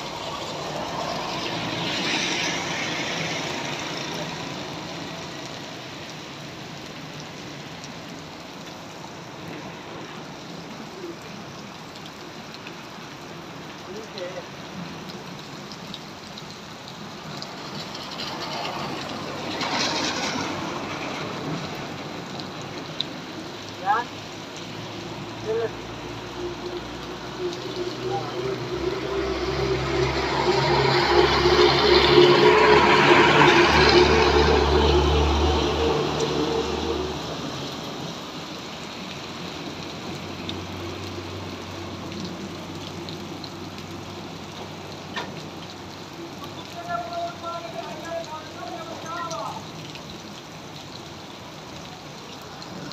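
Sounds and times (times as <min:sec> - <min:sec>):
heavy rain on wet ground: 0:00.0 - 0:52.9
raindrop taps: 0:13.8 - 0:23.8, 0:39.0 - 0:51.1.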